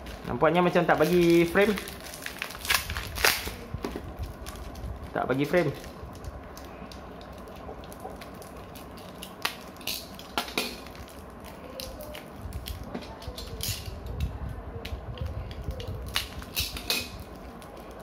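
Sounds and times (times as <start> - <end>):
plastic packaging crinkling: 0.0 - 14.2, 15.2 - 18.0.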